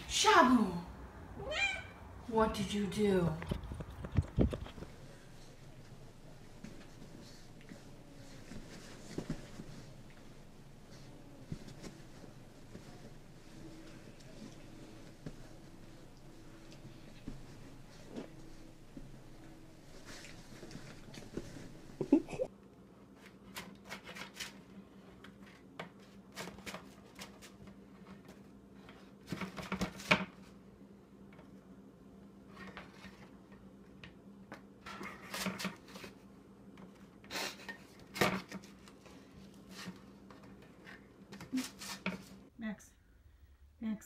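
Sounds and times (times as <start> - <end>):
low steady hum: 0.0 - 22.7.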